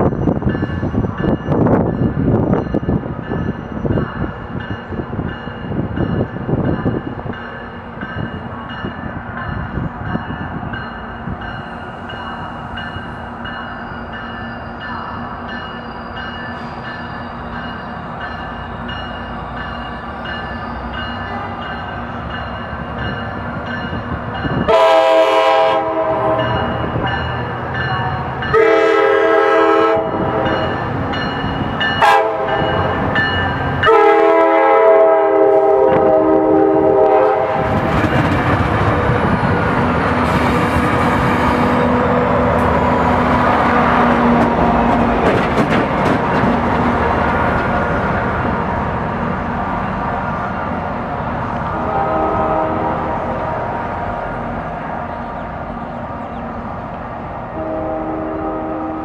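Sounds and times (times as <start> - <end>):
train rumbling: 0.0 - 59.0
train air horn blasts: 24.7 - 26.7, 28.5 - 30.6, 32.0 - 33.0, 33.8 - 37.8, 51.7 - 53.8, 57.5 - 59.0.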